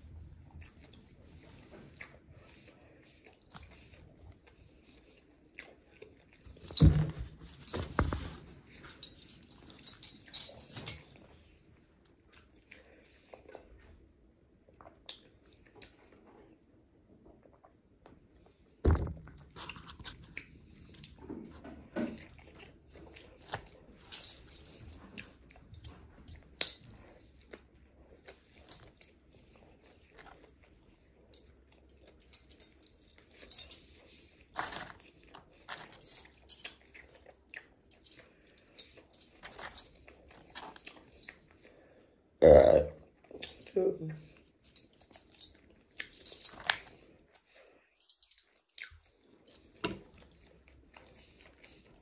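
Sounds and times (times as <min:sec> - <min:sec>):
chewing and biting food: 0:00.1 - 0:06.8, 0:12.0 - 0:14.0, 0:19.3 - 0:41.9, 0:43.1 - 0:52.0.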